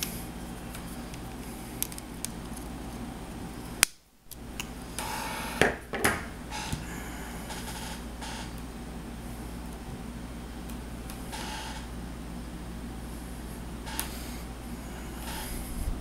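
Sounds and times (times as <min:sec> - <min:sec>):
steady low hum: 0:00.0 - 0:16.0
small plastic parts clicking: 0:01.8 - 0:02.6.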